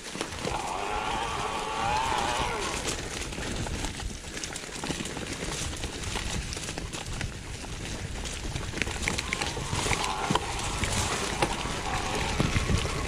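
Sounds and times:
bike tyres rolling on dirt: 0:00.0 - 0:13.0
wind rumble on microphone: 0:00.0 - 0:13.0
bike rattling and knocking: 0:02.8 - 0:13.0.

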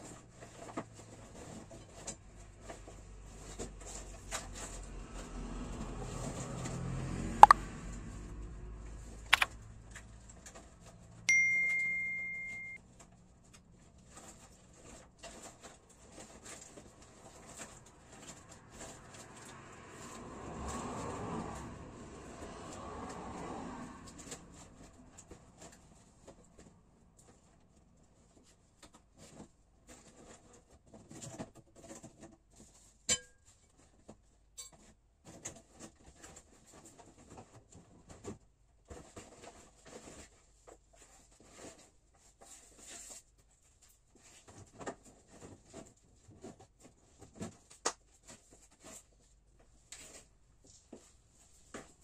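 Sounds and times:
sharp clink: 0:11.3 - 0:12.8.

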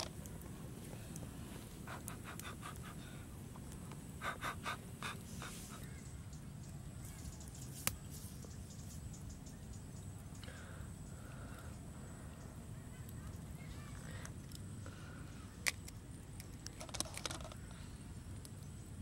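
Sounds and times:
low background noise: 0:00.0 - 0:19.0
person blowing breathy puffs: 0:01.6 - 0:03.3, 0:04.2 - 0:05.9.

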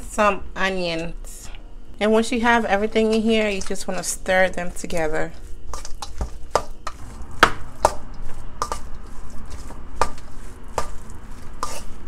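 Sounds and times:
utensil mashing thick filling: 0:02.6 - 0:12.0.

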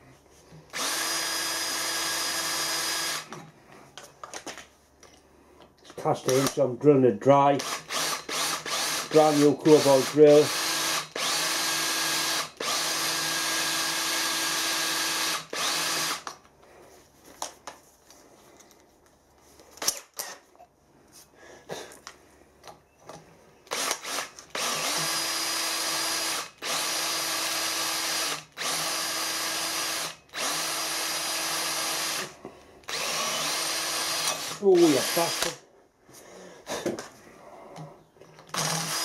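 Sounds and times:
electric drill drilling into metal: 0:00.7 - 0:03.4, 0:07.6 - 0:16.3, 0:23.7 - 0:32.3, 0:32.9 - 0:35.6, 0:38.5 - 0:39.0.

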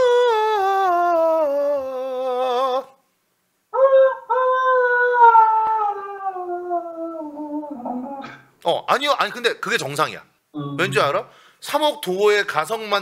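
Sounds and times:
man singing in falsetto: 0:00.0 - 0:03.0, 0:03.7 - 0:08.5.

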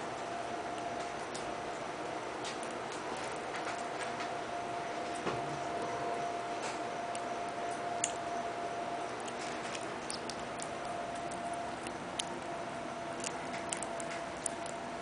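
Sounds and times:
faint hum and hiss: 0:00.0 - 0:15.0
kittens suckling clicks: 0:09.1 - 0:12.5, 0:13.1 - 0:14.9.

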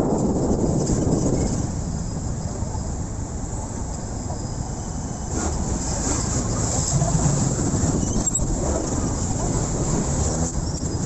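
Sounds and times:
traffic and road noise: 0:00.0 - 0:11.0
motorcycle rumble: 0:05.2 - 0:11.0.

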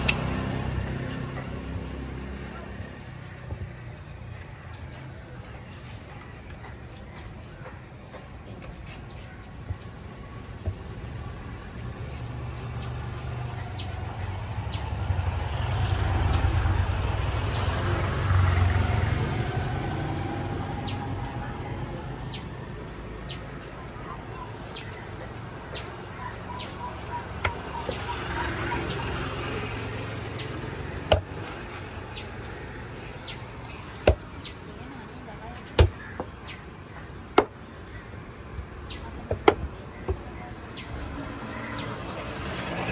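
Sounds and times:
passing road traffic rumble: 0:00.0 - 0:42.9
bird chirping: 0:23.2 - 0:29.4.

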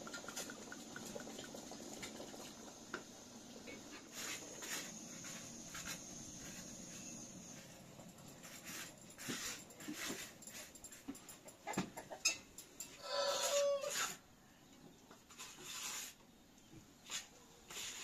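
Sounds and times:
wooden spoon scraping a pot: 0:08.4 - 0:10.8.

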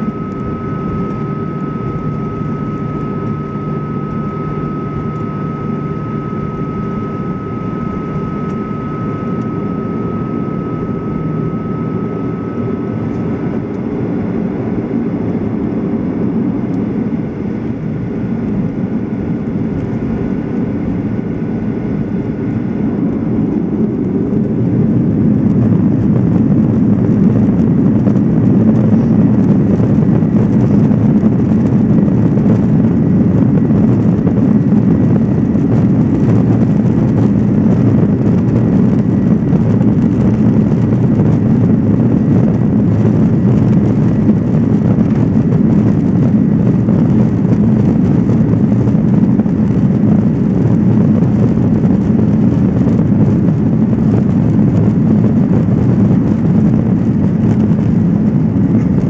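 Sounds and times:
jet engines rumbling in cabin: 0:00.0 - 0:59.0.

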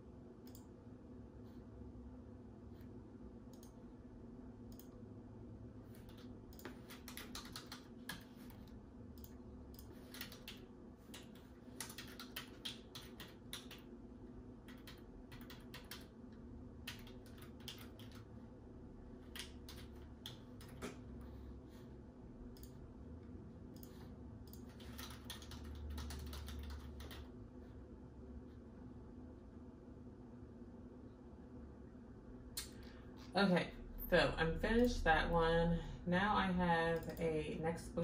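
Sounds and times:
steady low hum: 0:00.0 - 0:38.0
typing on a keyboard: 0:06.1 - 0:08.5, 0:09.2 - 0:13.9, 0:14.7 - 0:16.1, 0:16.8 - 0:18.3, 0:19.3 - 0:21.0, 0:23.8 - 0:27.3.

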